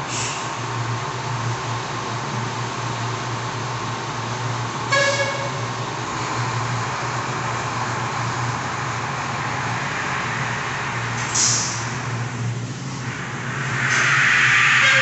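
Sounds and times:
air brake hiss: 0:00.0 - 0:00.6, 0:11.1 - 0:12.1, 0:13.0 - 0:15.0
diesel engine running: 0:00.0 - 0:15.0
rushing noise: 0:03.8 - 0:15.0.

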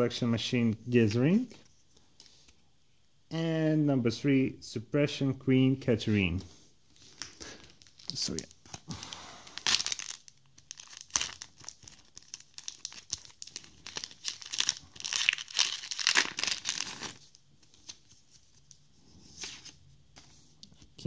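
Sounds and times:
foil wrapper tearing and crinkling: 0:07.2 - 0:17.3.

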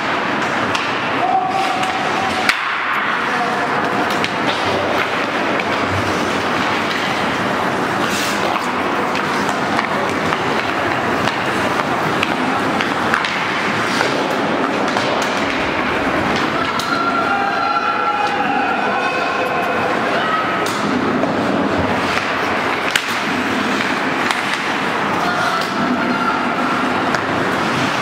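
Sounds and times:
hockey sticks clacking on puck: 0:00.0 - 0:17.3, 0:18.1 - 0:28.0
skate blades scraping ice: 0:03.5 - 0:16.9, 0:20.1 - 0:28.0.

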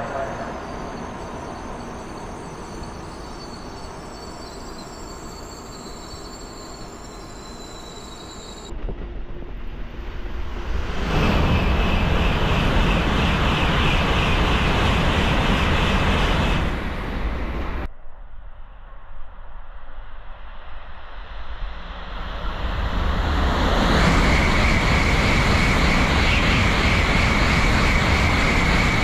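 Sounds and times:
high-speed train rushing past: 0:00.0 - 0:17.9, 0:21.8 - 0:29.0
rail rumble: 0:00.0 - 0:17.9, 0:22.2 - 0:29.0.

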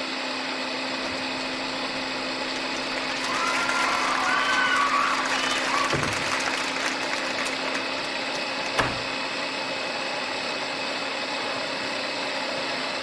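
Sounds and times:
machine running noise: 0:00.0 - 0:13.0.

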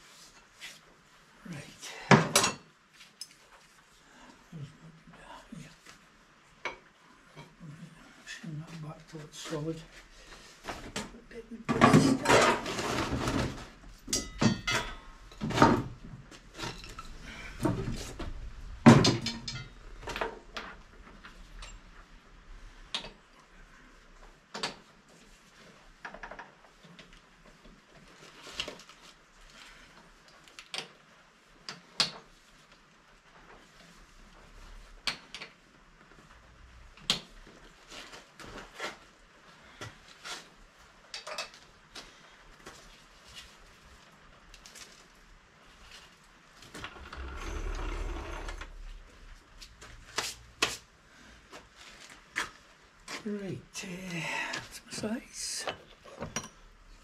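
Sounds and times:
metal tools knocking: 0:14.1 - 0:15.5.

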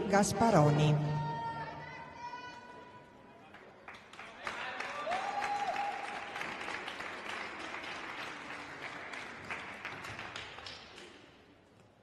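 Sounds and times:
audience applauding: 0:03.5 - 0:11.2.

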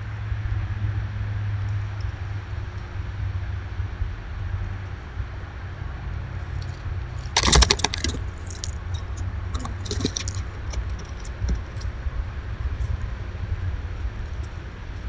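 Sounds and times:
steady low rumble: 0:00.0 - 0:15.0
squirrels scratching at feeder: 0:06.5 - 0:12.0.

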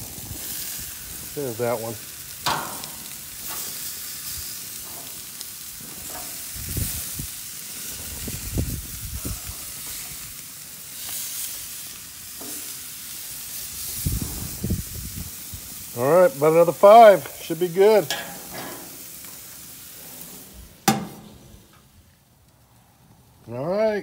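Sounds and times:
meat sizzling on a grill: 0:00.0 - 0:24.0
metal tongs clicking on grate: 0:02.4 - 0:03.2.

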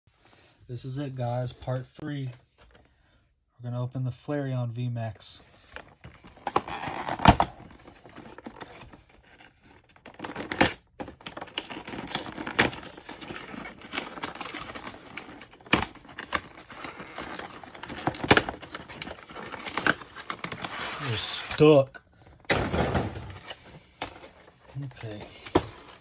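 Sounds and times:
cardboard rustling: 0:05.5 - 0:21.8, 0:22.5 - 0:26.0
plastic crinkling: 0:06.2 - 0:21.5.

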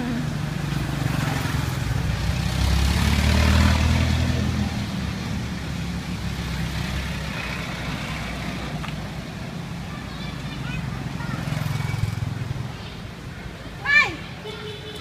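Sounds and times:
vehicle engine rumbling past: 0:00.0 - 0:08.8
low traffic hum: 0:00.0 - 0:15.0.

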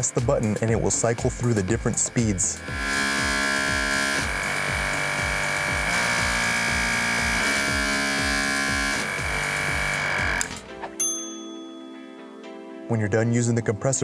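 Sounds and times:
air compressor whining: 0:00.0 - 0:10.9
background music with beat: 0:00.0 - 0:14.0.

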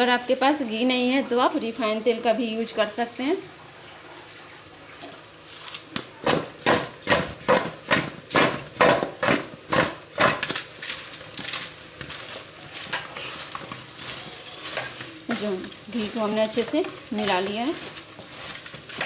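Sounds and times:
dough balls knocking in steel bowl: 0:06.0 - 0:19.0.

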